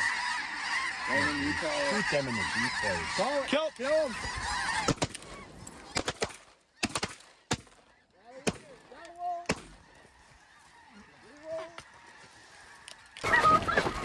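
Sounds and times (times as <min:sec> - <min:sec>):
snow goose calls: 0:00.0 - 0:06.1, 0:07.9 - 0:14.0
shotgun shots: 0:05.9 - 0:07.8.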